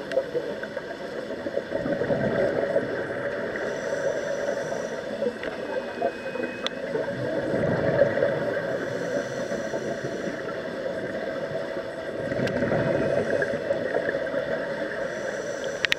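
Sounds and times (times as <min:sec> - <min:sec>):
muffled underwater noise: 0:00.0 - 0:15.9
diver's exhaled bubbles: 0:01.6 - 0:03.6, 0:07.0 - 0:08.8, 0:12.2 - 0:14.8.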